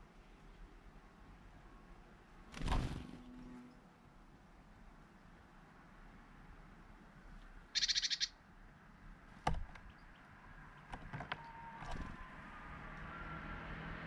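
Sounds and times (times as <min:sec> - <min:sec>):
small bird churring call: 0:07.8 - 0:08.4.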